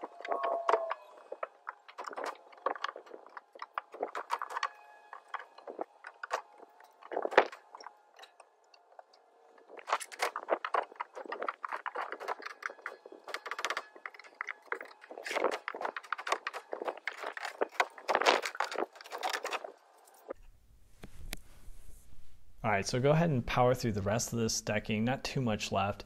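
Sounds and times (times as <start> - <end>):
wood cracking and scraping: 0.0 - 20.4.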